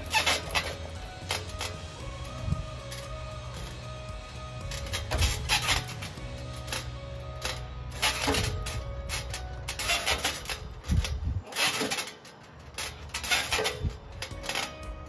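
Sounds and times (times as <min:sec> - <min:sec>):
metal swing set creaking and rattling: 0:00.0 - 0:15.0.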